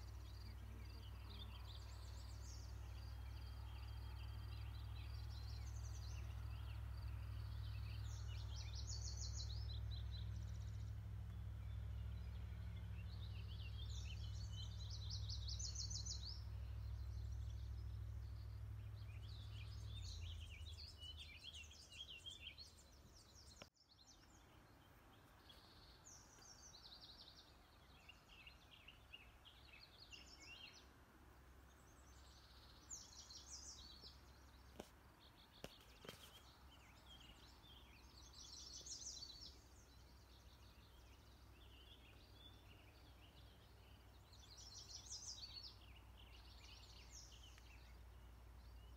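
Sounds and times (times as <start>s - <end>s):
low hum: 0.0s - 23.6s
songbirds trilling: 0.0s - 48.9s.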